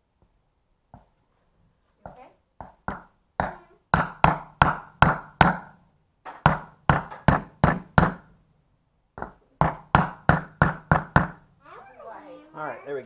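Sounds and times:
hammer striking wooden block: 2.6 - 8.3, 9.2 - 11.4.

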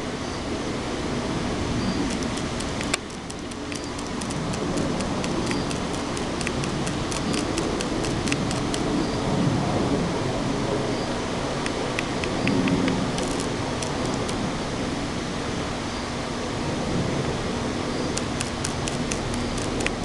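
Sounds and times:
motor humming: 1.9 - 9.1, 11.6 - 15.1, 17.8 - 20.0
light irregular ticks: 2.0 - 9.0, 11.6 - 14.5, 18.0 - 20.0
loud click: 11.6 - 14.4.

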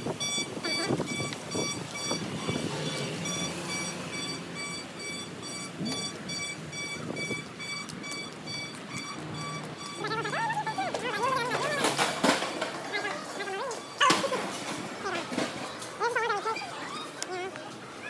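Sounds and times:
electronic warning beeper: 0.1 - 12.0, 12.9 - 14.3
handling noise: 7.0 - 17.8
footsteps on pavement: 7.1 - 14.6.

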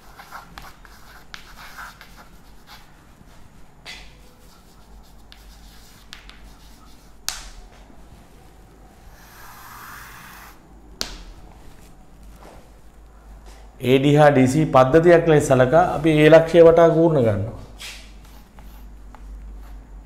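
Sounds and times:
chalk scratching on chalkboard: 0.0 - 2.9, 4.0 - 7.2, 9.1 - 10.6, 17.8 - 18.9
chalk tapping on board: 0.1 - 2.8, 3.9 - 7.5.

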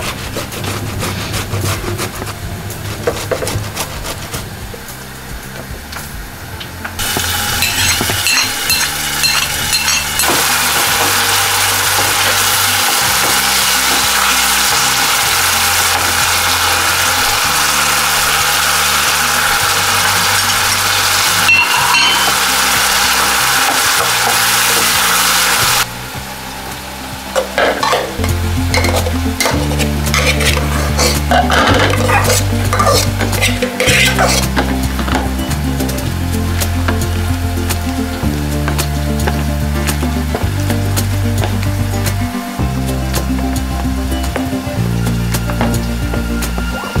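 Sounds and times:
soft background music: 0.0 - 47.0
tomato sizzling in oil: 6.7 - 47.0
spoon clinking on metal pot: 7.6 - 11.2, 21.5 - 22.7, 27.6 - 34.7.

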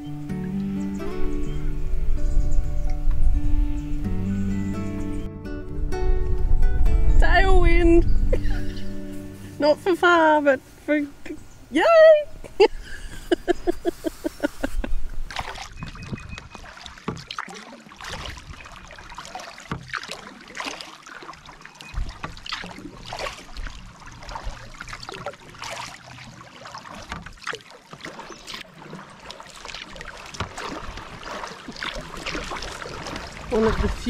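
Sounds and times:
paddle splashing in water: 13.2 - 34.0
water dripping off paddle: 15.3 - 34.0.

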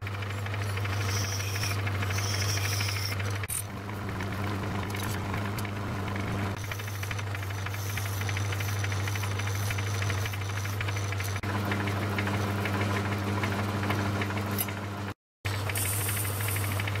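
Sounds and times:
metal lathe humming and rattling: 0.0 - 17.0
file hissing on spinning metal: 0.5 - 3.5, 6.6 - 11.4, 15.6 - 17.0.

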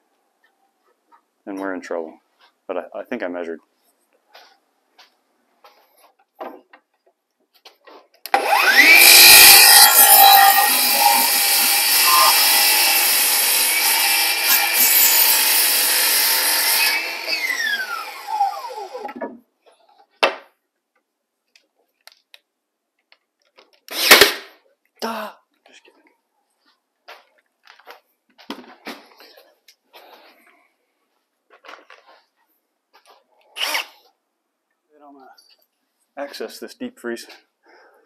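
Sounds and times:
circular saw cutting wood: 8.3 - 19.2.

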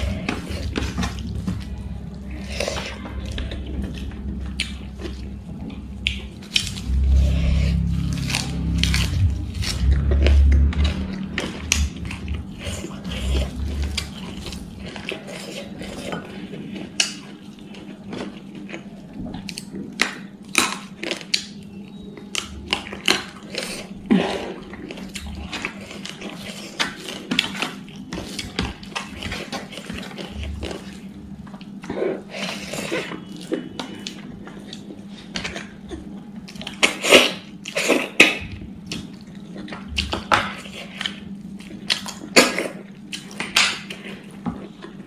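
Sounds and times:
chewing: 0.0 - 45.0.

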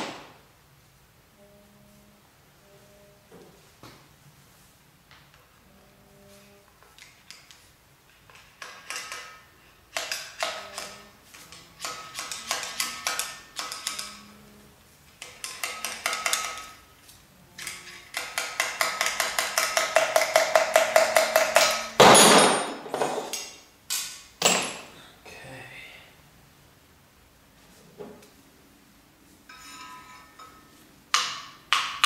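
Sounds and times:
steel rod scraping metal: 8.6 - 14.4, 29.5 - 30.8.

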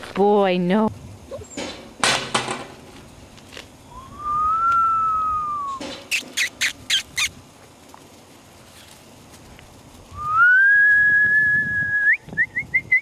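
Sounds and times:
person whistling long note: 3.9 - 5.8, 10.2 - 13.0
high squeaky smacking sounds: 5.7 - 7.4.

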